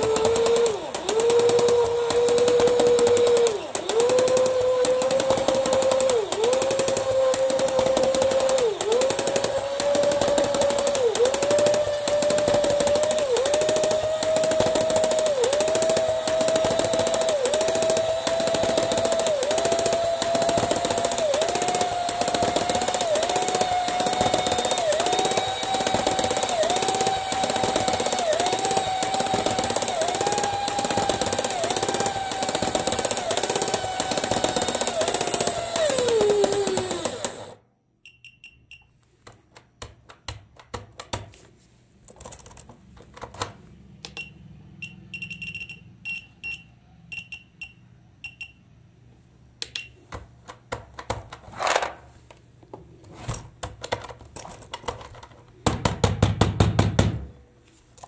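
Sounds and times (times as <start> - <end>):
small motor whining: 0.0 - 37.6.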